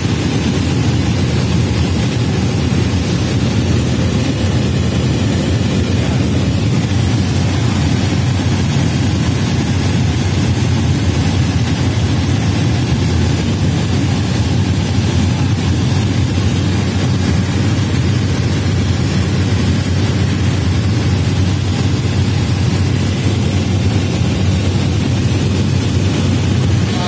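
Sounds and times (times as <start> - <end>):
turboprop plane droning: 0.0 - 27.0.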